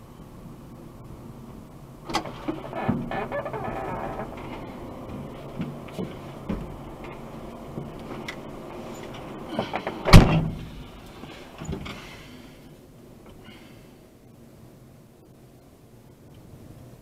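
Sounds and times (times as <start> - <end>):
loud door clunk: 2.1 - 5.8, 9.6 - 10.8.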